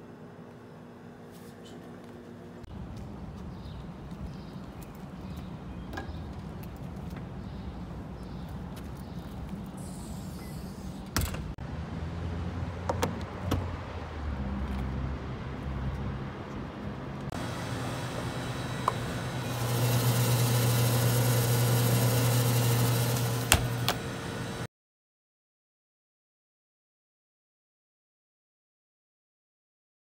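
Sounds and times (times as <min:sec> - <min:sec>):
cooler door click: 0:23.5 - 0:24.0.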